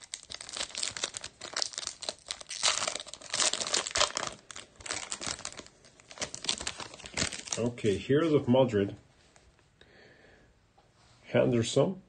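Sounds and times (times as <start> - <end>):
foil card pack crinkling and tearing: 0.0 - 7.9.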